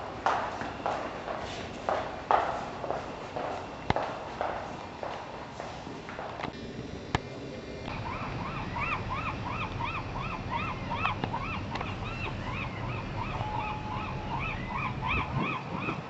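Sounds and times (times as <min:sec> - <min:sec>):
gulls calling: 0:07.0 - 0:16.0
wind rumble on microphone: 0:10.4 - 0:16.0.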